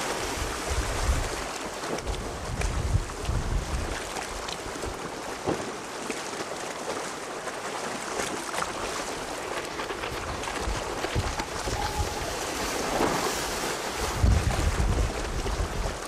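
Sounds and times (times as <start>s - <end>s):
choppy sea: 0.0s - 16.0s
wind buffeting microphone: 0.3s - 1.4s, 2.0s - 5.0s, 9.7s - 16.0s
rushing wind: 2.1s - 4.0s, 10.0s - 16.0s.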